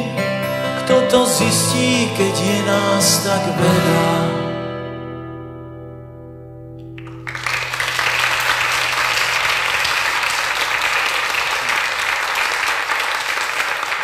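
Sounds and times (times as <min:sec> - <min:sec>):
acoustic guitar chord: 0:00.0 - 0:07.7
audience applause: 0:07.0 - 0:14.0.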